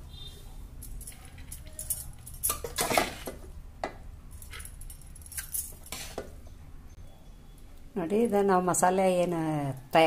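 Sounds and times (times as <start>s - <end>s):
metal spoon scraping a pot: 5.8s - 6.3s.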